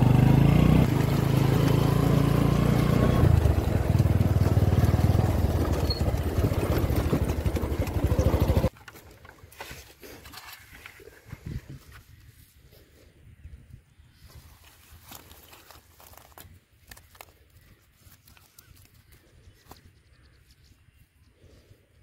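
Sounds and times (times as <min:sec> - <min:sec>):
small motorcycle engine running: 0:00.0 - 0:09.0.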